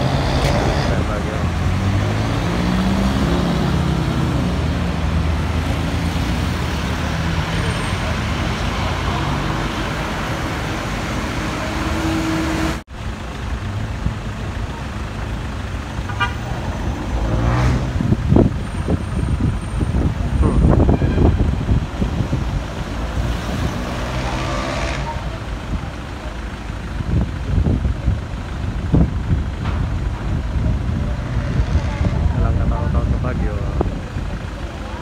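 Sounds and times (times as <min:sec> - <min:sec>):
street traffic: 0:00.0 - 0:35.0
car horn toot: 0:16.1 - 0:16.5, 0:20.4 - 0:21.5
wind buffeting microphone: 0:17.8 - 0:23.8.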